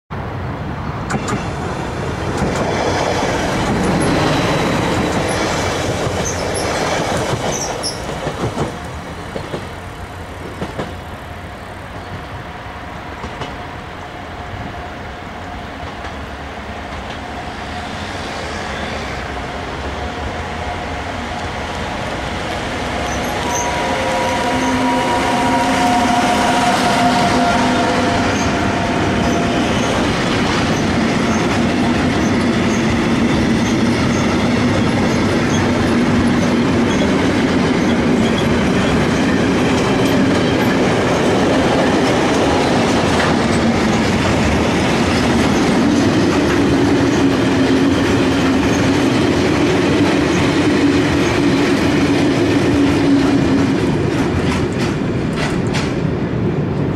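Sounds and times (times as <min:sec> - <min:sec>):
freight train passing: 0:00.1 - 0:56.9
locomotive whine: 0:00.5 - 0:56.9
loud rumble with high squeaks: 0:22.9 - 0:47.3.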